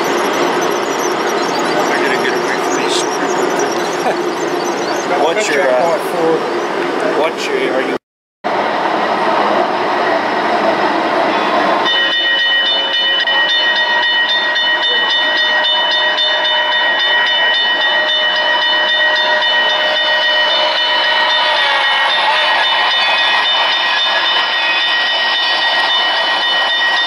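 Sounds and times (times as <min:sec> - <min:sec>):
model train rushing noise: 0:00.0 - 0:07.8, 0:08.5 - 0:27.0
locomotive whistle: 0:11.3 - 0:27.0.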